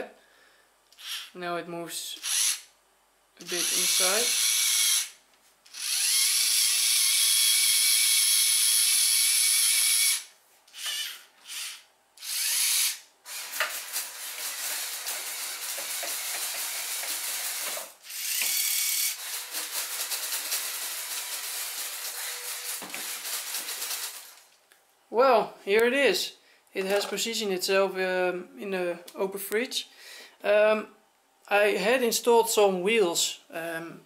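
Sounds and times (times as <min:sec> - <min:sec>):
small electric motors whirring: 0:00.9 - 0:01.3, 0:02.2 - 0:02.7, 0:03.4 - 0:24.5.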